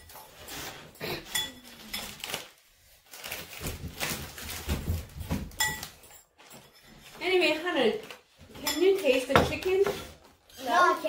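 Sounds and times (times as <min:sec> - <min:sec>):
metal utensil clinking on ceramic bowl: 0:01.2 - 0:02.3, 0:08.6 - 0:10.1
handling noises and small knocks: 0:03.2 - 0:07.3.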